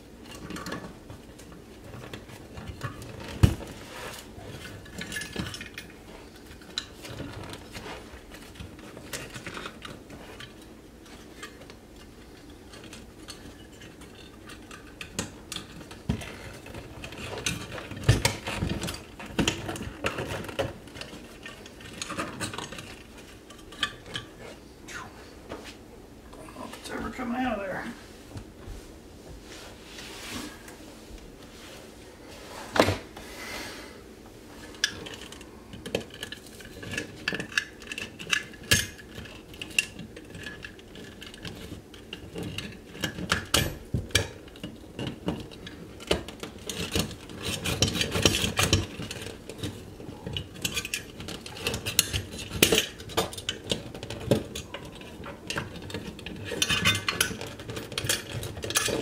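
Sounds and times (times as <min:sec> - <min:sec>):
metal clinks knocks and scraping: 0:34.7 - 0:59.0.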